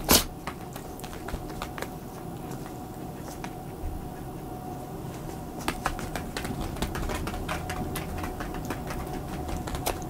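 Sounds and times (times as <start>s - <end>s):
dog claws clicking on wooden floor: 0.1s - 3.6s, 5.6s - 10.0s.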